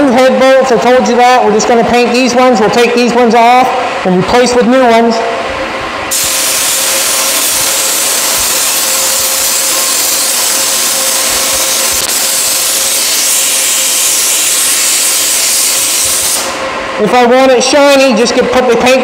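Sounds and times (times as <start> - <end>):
paint spray gun hissing: 6.1 - 16.6.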